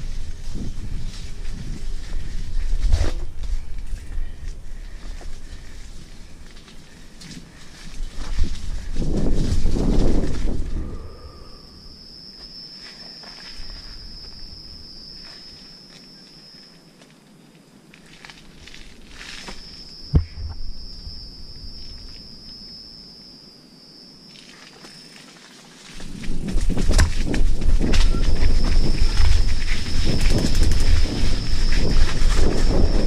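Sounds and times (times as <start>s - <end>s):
high-pitched insect drone: 0.0s - 33.0s
bike rolling over rough ground: 24.6s - 33.0s.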